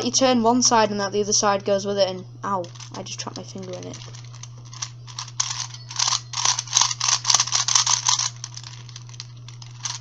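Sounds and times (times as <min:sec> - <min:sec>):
plastic puzzle cube clicking: 0:04.8 - 0:08.9, 0:09.8 - 0:10.0.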